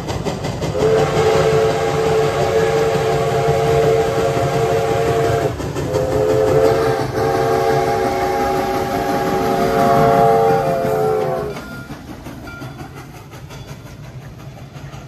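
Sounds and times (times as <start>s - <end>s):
locomotive low rumble: 0.0s - 15.0s
steam locomotive whistle blasts: 0.7s - 11.8s.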